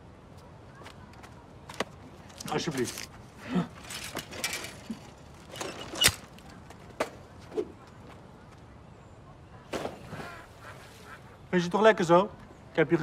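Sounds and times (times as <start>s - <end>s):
bicycle metal clack: 3.8s - 6.4s.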